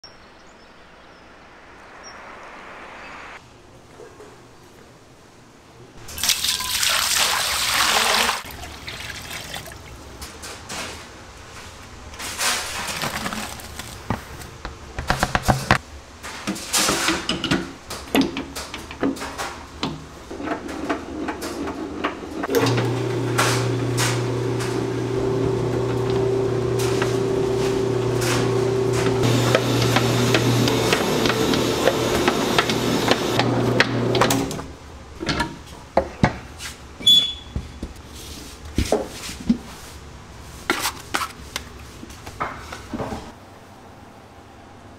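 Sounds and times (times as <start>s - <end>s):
liquid pouring into metal bowl: 6.2s - 9.9s
dough mixer humming: 22.5s - 34.6s.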